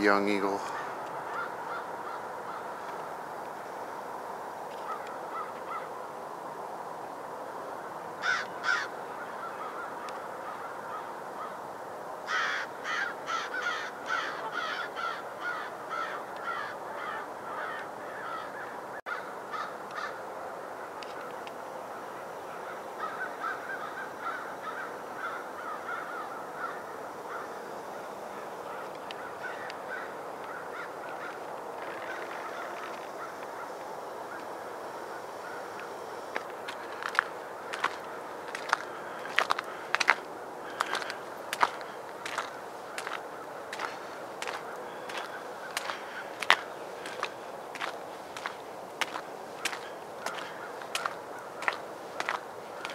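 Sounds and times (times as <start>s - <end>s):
harsh bird calls: 0.0s - 3.0s, 8.2s - 11.6s, 12.3s - 20.2s, 22.0s - 52.9s
outdoor hiss: 19.4s - 52.9s.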